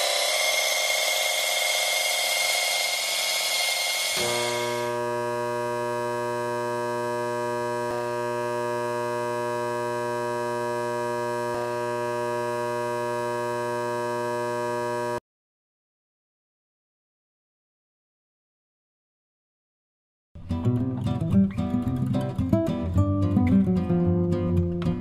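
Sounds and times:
electric motor humming: 0.0s - 15.2s.

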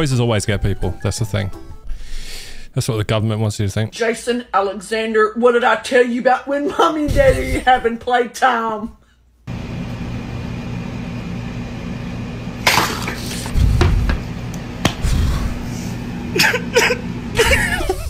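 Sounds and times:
low electrical hum: 1.9s - 18.0s.

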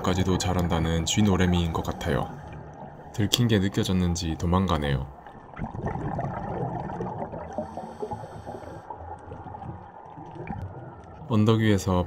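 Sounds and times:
underwater bubbles gurgling: 0.0s - 11.9s
hiss of bubbles: 5.5s - 9.6s.

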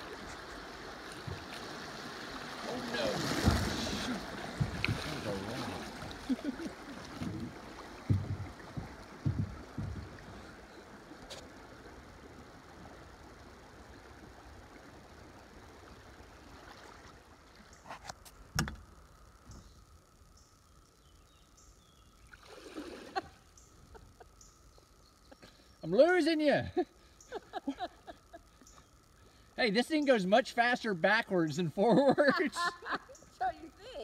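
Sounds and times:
river water rushing: 0.0s - 13.7s
kayak hull knocking on rock: 4.5s - 5.1s, 7.2s - 10.3s.

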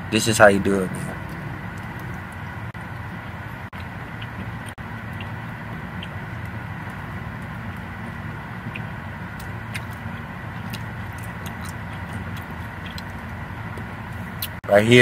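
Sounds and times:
low hum inside car: 0.0s - 15.0s
person chewing candy: 3.7s - 14.6s.

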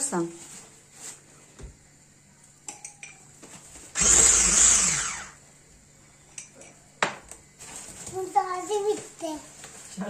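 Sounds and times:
electric hand mixer running: 3.9s - 5.4s.

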